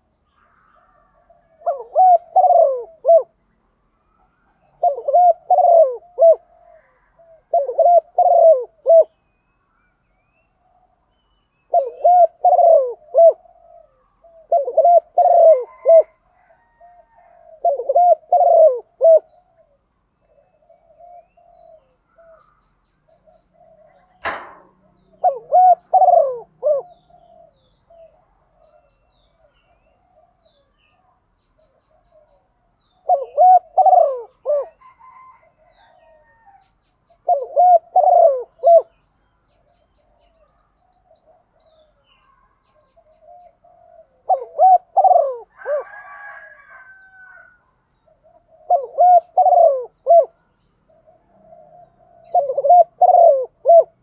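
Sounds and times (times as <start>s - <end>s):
dove cooing: 0.0s - 3.4s, 4.2s - 9.2s, 11.7s - 39.0s, 39.7s - 54.0s
sharp knock: 24.2s - 25.0s.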